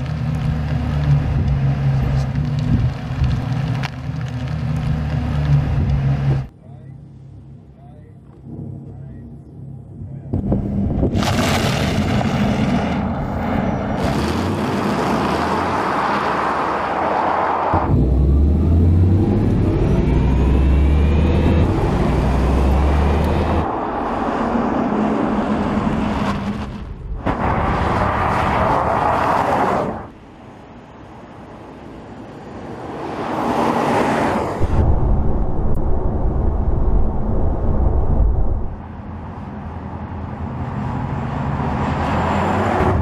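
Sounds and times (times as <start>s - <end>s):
low hum: 0.4s - 11.4s, 34.6s - 40.2s
tyre and wind rush: 21.5s - 39.0s.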